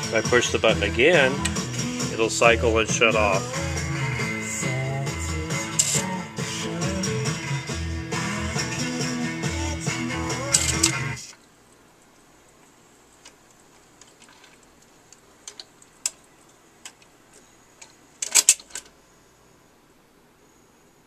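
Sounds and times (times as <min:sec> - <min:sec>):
record changer mechanical clicks: 0:10.4 - 0:19.0.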